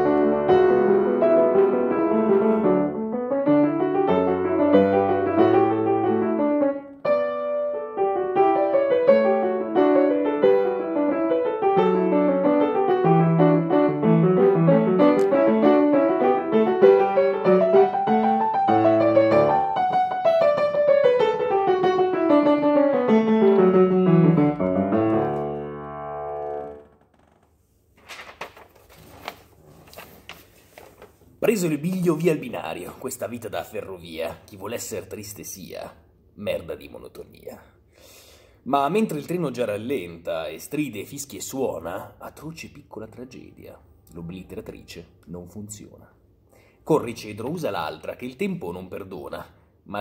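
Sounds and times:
grand piano playing: 0:00.0 - 0:27.0.

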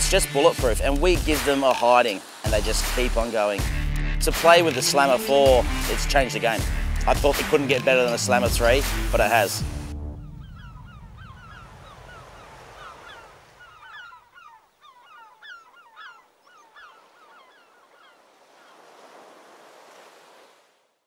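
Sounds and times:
seabirds chirping: 0:00.0 - 0:20.5
surf and wind hiss: 0:01.4 - 0:03.7, 0:18.3 - 0:20.7.

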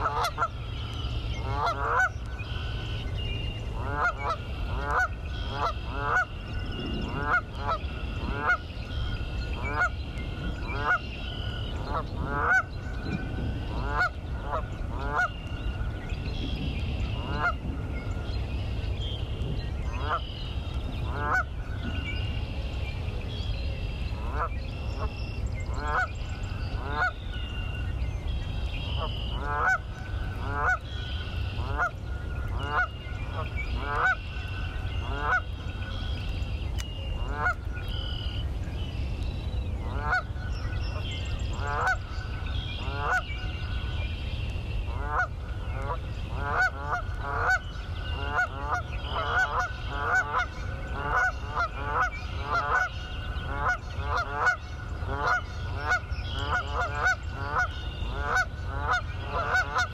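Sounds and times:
geese honking: 0:00.0 - 0:00.6, 0:01.2 - 0:03.0, 0:03.8 - 0:06.4, 0:07.1 - 0:10.0, 0:10.6 - 0:12.7, 0:13.7 - 0:15.4, 0:17.2 - 0:17.6, 0:21.1 - 0:21.5, 0:25.7 - 0:26.1, 0:26.8 - 0:27.2, 0:28.9 - 0:36.2, 0:37.2 - 0:38.4, 0:39.9 - 0:40.3, 0:41.6 - 0:42.1, 0:42.8 - 0:43.4, 0:44.9 - 0:52.9, 0:53.5 - 0:59.9.

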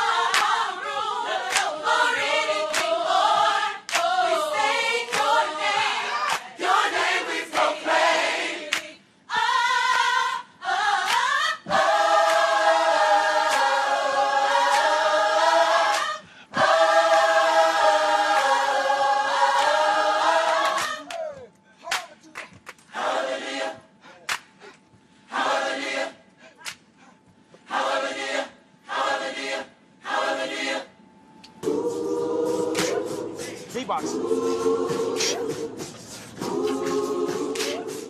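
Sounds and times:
choir singing a cappella: 0:00.0 - 0:21.3, 0:22.9 - 0:24.3, 0:25.2 - 0:26.6, 0:27.6 - 0:38.0
hand claps: 0:00.3 - 0:00.6, 0:01.5 - 0:01.8, 0:02.7 - 0:03.0, 0:03.8 - 0:04.1, 0:05.0 - 0:06.6, 0:08.7 - 0:09.0, 0:11.0 - 0:11.3, 0:12.2 - 0:12.5, 0:13.5 - 0:13.8, 0:14.7 - 0:14.9, 0:15.9 - 0:16.2, 0:18.3 - 0:19.8, 0:20.6 - 0:22.9, 0:24.2 - 0:24.6, 0:26.6 - 0:26.9, 0:32.7 - 0:33.0, 0:37.5 - 0:37.9.

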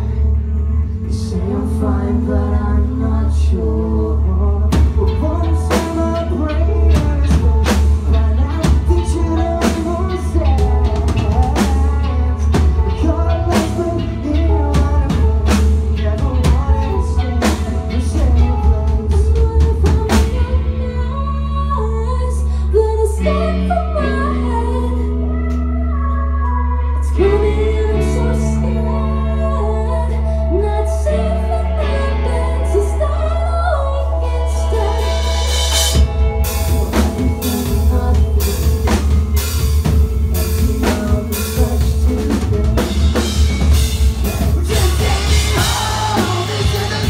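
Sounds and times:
person singing: 0:00.0 - 0:47.0
rock music: 0:00.0 - 0:47.0
drum kit beat: 0:04.7 - 0:20.6, 0:34.8 - 0:47.0.

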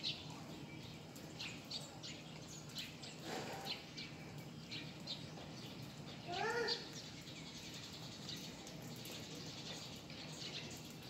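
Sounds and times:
faint steady background noise: 0:00.0 - 0:11.0
small birds chirping: 0:00.0 - 0:11.0.

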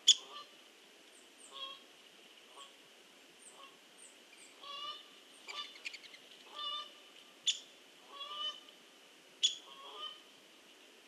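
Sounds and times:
geese honking: 0:04.6 - 0:05.7, 0:06.5 - 0:06.9, 0:08.1 - 0:08.6, 0:09.7 - 0:10.2.

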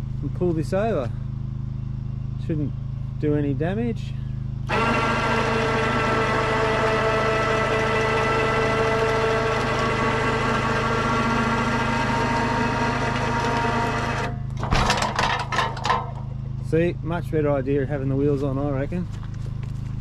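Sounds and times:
engine idling hum: 0:00.0 - 0:20.0
winch whining: 0:04.6 - 0:16.3.

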